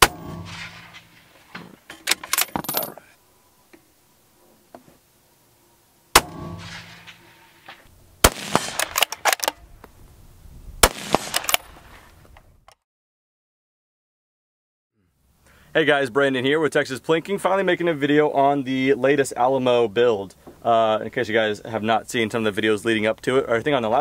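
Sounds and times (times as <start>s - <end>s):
rifle shots: 0.0s - 1.3s, 6.2s - 7.4s, 8.2s - 9.6s, 10.8s - 11.9s
rifle bolt cracks and clanks: 1.6s - 3.0s, 8.5s - 9.6s, 11.1s - 11.8s.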